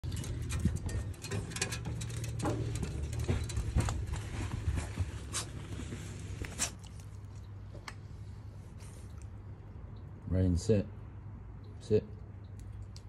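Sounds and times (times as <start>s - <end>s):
dog claws clicking on metal stairs: 0.0s - 4.9s
person's footsteps: 0.0s - 6.6s.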